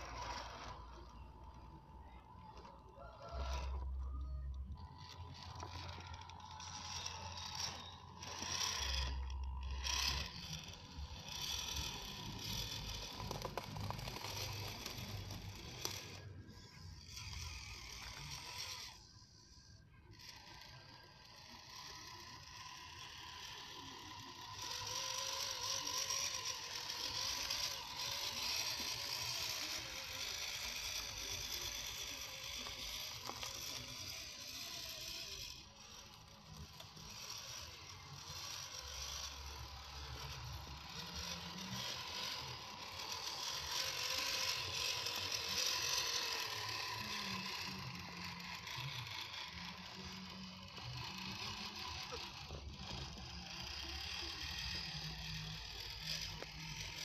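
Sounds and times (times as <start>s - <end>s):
toy car electric motor whirring: 0.0s - 57.0s.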